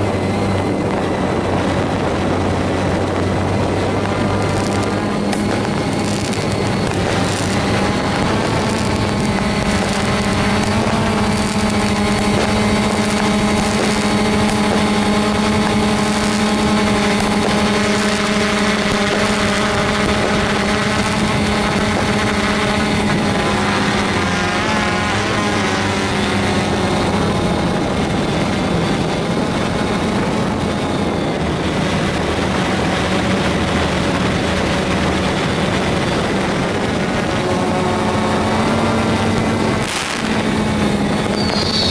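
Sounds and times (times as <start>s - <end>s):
drone propellers whining: 0.0s - 41.9s.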